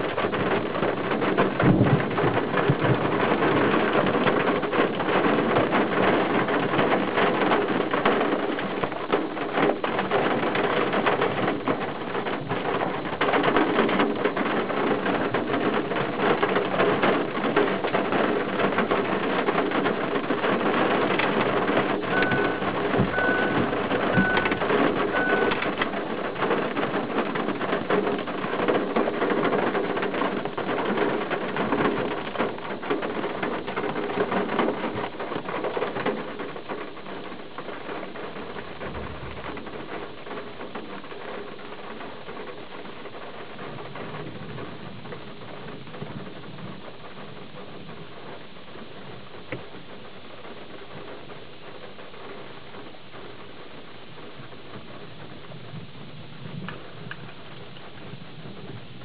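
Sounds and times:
rain pattering on window glass: 0:00.0 - 0:59.0
short high beeps: 0:22.1 - 0:24.6, 0:25.2 - 0:25.6.

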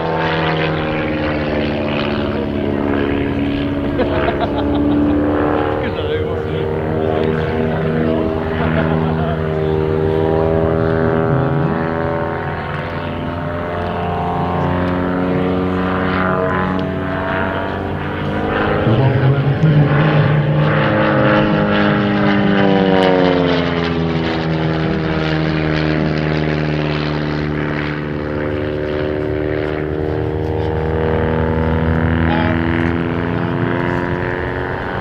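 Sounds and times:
propeller plane engine overhead: 0:00.0 - 0:35.0.

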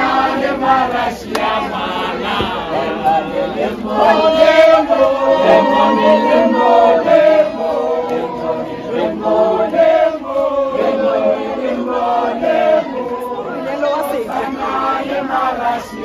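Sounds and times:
crowd singing in chorus: 0:00.0 - 0:16.0.

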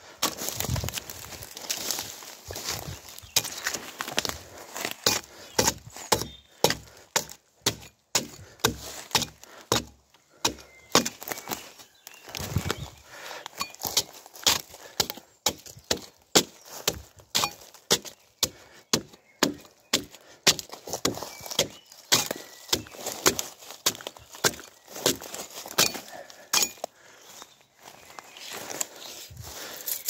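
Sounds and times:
tool chopping and scraping bark: 0:00.0 - 0:02.0, 0:02.6 - 0:27.1.

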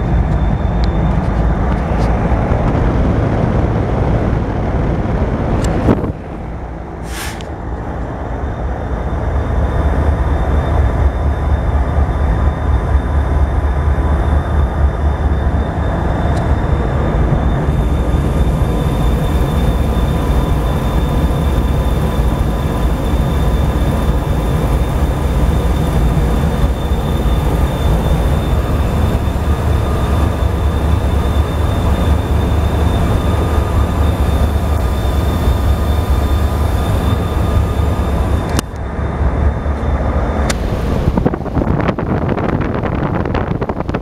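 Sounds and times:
faint high whine: 0:06.7 - 0:44.0
heat pump humming: 0:12.5 - 0:43.9.

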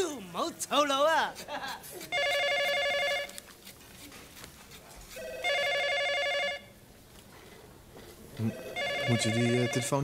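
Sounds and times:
telephone ringing: 0:02.1 - 0:03.4, 0:05.2 - 0:06.8, 0:08.4 - 0:10.0.

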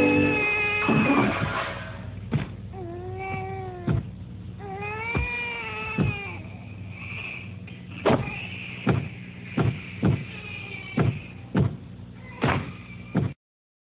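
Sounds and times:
steady low hum: 0:00.0 - 0:13.4
dull thumps: 0:03.3 - 0:04.2.

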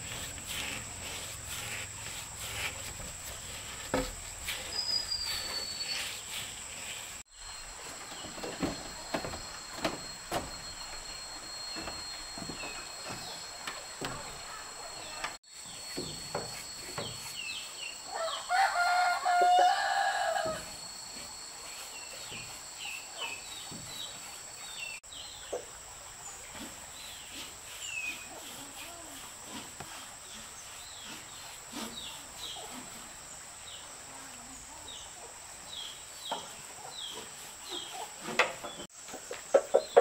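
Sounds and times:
high-pitched hum: 0:00.0 - 0:25.0
small birds chirping: 0:04.5 - 0:09.7
rooster crowing: 0:18.0 - 0:20.7.

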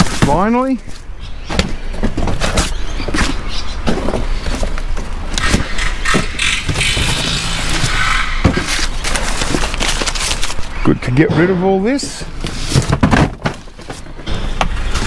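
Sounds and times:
low vehicle rumble: 0:01.0 - 0:15.0
cardboard boxes scraping: 0:01.8 - 0:10.7, 0:12.0 - 0:15.0
boxes thudding into skip: 0:11.2 - 0:15.0.

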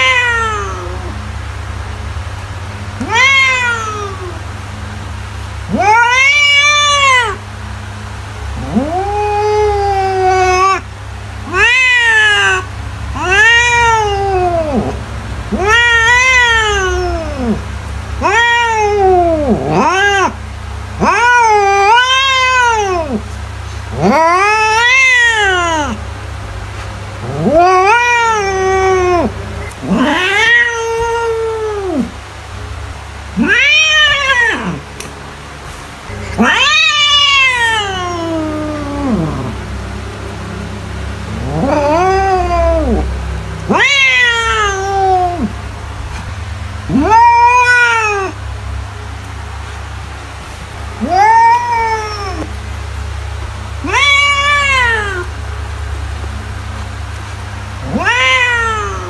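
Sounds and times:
cat meowing: 0:00.0 - 0:01.3, 0:03.0 - 0:04.4, 0:05.7 - 0:07.4, 0:08.5 - 0:17.6, 0:18.2 - 0:20.4, 0:21.0 - 0:23.3, 0:23.9 - 0:26.0, 0:27.2 - 0:32.2, 0:33.3 - 0:34.9, 0:36.1 - 0:39.9, 0:41.3 - 0:45.6, 0:46.9 - 0:48.4, 0:51.0 - 0:52.6, 0:53.8 - 0:55.4, 0:57.8 - 0:59.0
low steady hum: 0:00.0 - 0:59.0.

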